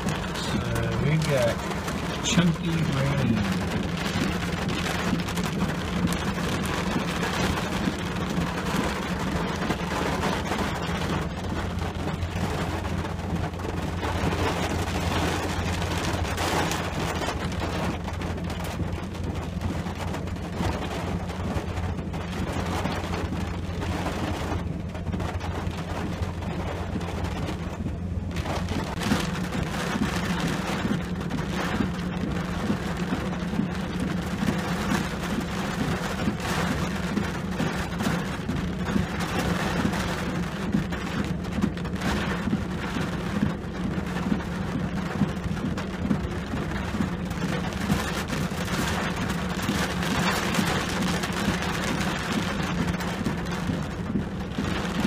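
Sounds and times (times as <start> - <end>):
rain on a vehicle roof: 0.0 - 55.0.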